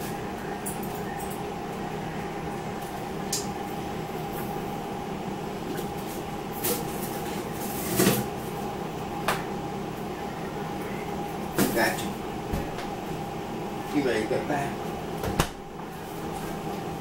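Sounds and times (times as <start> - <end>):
steady background hum: 0.0 - 17.0
faint whine: 8.6 - 15.0.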